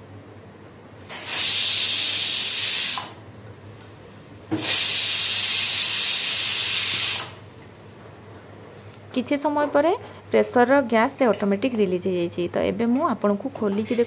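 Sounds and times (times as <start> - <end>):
pressure cooker whistling: 1.2 - 3.2, 4.5 - 7.4.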